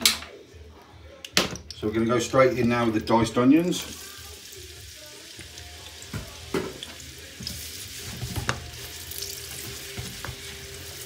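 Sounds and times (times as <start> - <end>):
onions sizzling in oil: 3.7 - 11.0.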